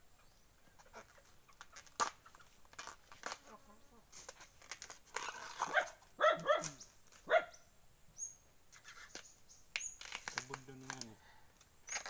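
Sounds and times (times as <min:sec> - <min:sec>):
rustle of plant leaves peeled: 0:01.0 - 0:07.3, 0:08.7 - 0:12.0
dog barking: 0:05.7 - 0:07.6.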